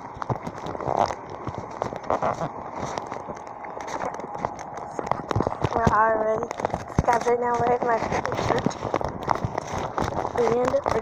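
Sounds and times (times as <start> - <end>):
footsteps: 0.0 - 11.0.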